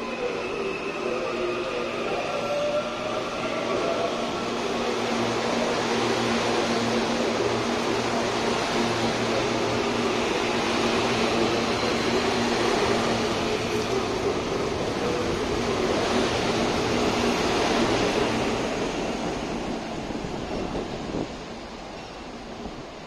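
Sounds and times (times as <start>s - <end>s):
electric train hum: 0.0s - 23.0s
train rolling noise: 0.0s - 23.0s.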